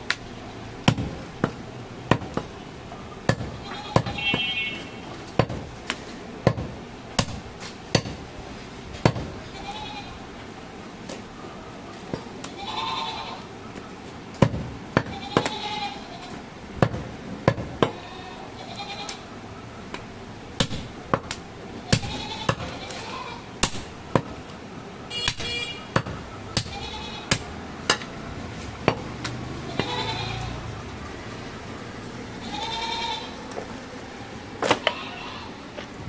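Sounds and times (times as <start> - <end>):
cleaver chopping meat on wood: 0.8 - 2.5, 3.3 - 4.2, 5.4 - 5.7, 6.4 - 8.2, 20.6 - 22.7, 23.6 - 24.3, 25.2 - 28.1
goats bleating: 3.6 - 4.5, 9.5 - 10.2, 12.5 - 13.5, 15.1 - 16.4, 17.9 - 19.2, 21.9 - 23.5, 26.6 - 27.3, 29.6 - 30.6, 32.4 - 33.4, 34.9 - 35.6.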